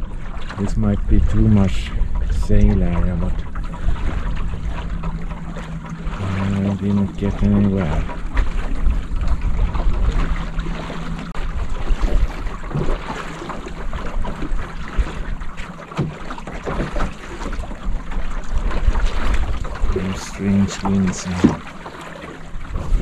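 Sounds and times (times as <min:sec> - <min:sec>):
wind buffeting microphone: 0:00.0 - 0:15.6, 0:22.5 - 0:23.0
water splashing against hull: 0:00.0 - 0:23.0.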